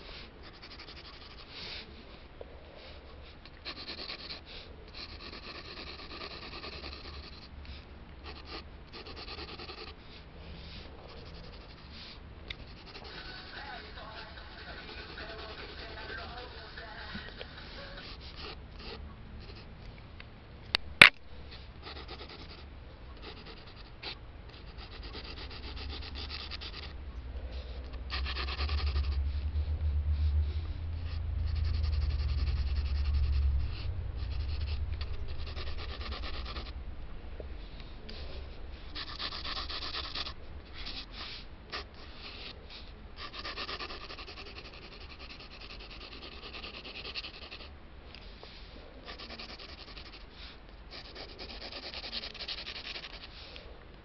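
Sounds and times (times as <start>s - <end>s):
pencil scratching on paper: 0.0s - 1.8s, 3.5s - 10.0s, 10.6s - 19.7s, 21.8s - 27.0s, 27.6s - 29.2s, 31.0s - 36.8s, 38.1s - 47.7s, 49.0s - 53.5s
low rumble: 10.0s - 41.7s
sharp click: 20.7s - 21.2s.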